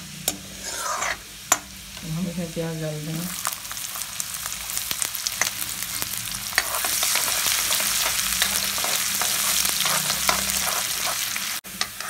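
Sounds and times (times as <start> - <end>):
onion sizzling in hot oil: 0.0 - 12.0
steel ladle scraping pan: 0.2 - 1.6, 6.6 - 12.0.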